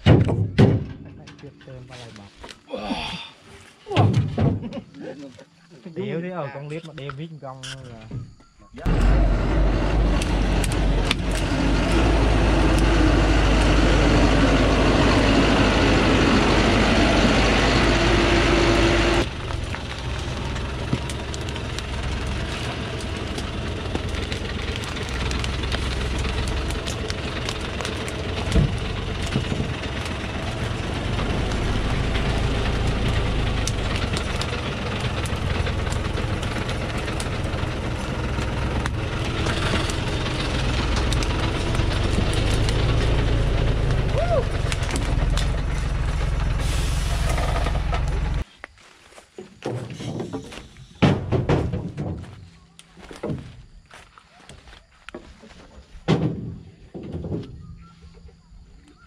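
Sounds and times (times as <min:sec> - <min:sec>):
diesel truck engine running: 0:08.8 - 0:48.4.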